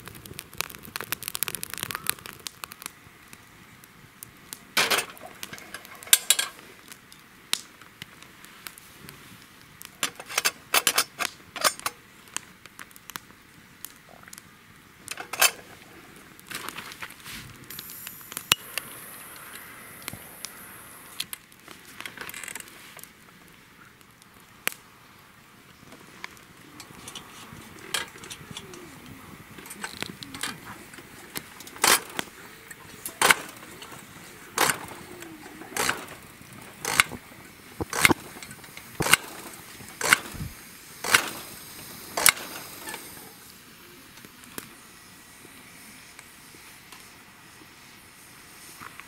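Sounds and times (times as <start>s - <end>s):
lantern pump clicking strokes: 29.6s - 43.3s.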